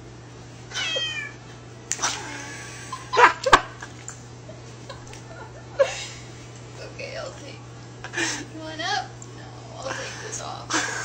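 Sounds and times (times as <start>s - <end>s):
low steady hum: 0.0s - 11.0s
cat meowing: 0.7s - 1.4s.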